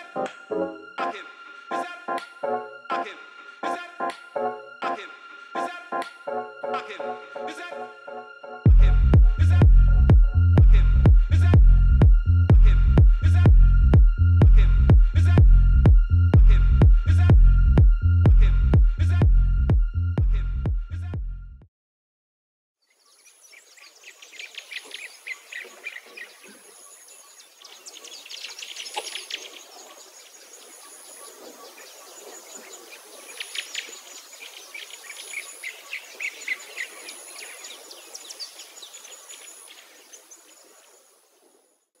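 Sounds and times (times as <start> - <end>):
small birds chirping: 22.8 - 41.8.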